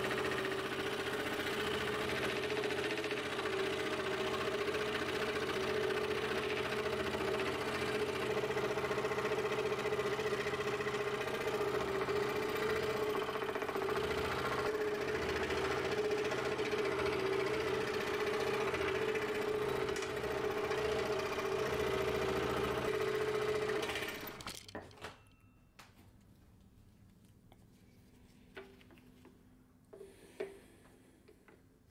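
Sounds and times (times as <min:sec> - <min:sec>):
scroll saw cutting wood: 0:00.0 - 0:24.5.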